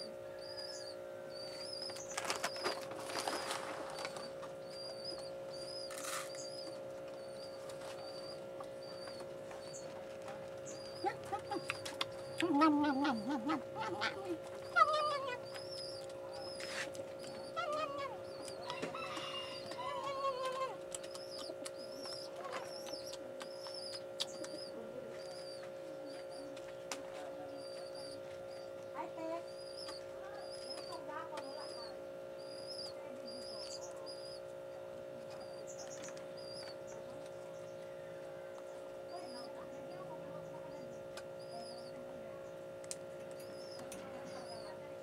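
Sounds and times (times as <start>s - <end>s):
lower wavering bird calls: 0.0s - 10.0s, 10.6s - 26.6s, 27.5s - 42.1s, 43.3s - 44.8s
electrical hum: 0.0s - 45.0s
small birds chirping: 0.0s - 45.0s
rabbit scuffling in cage: 1.9s - 4.5s.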